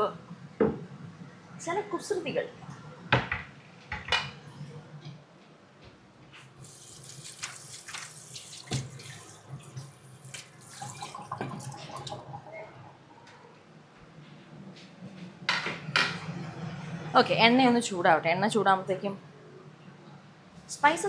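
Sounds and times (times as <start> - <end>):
tap water running into sink: 6.6 - 12.4.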